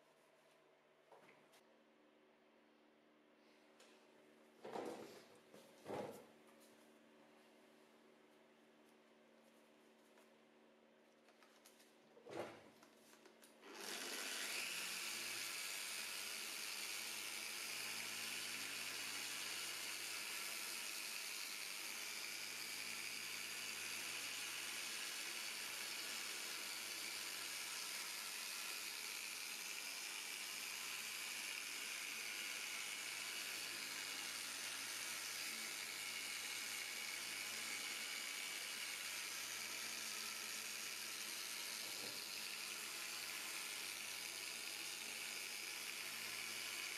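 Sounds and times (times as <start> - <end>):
orbital sander whirring: 13.6 - 46.9.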